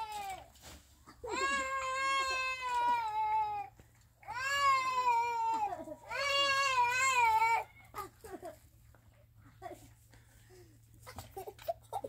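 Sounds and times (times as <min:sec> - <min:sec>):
long high wailing cries: 0:00.0 - 0:00.5, 0:01.2 - 0:08.3.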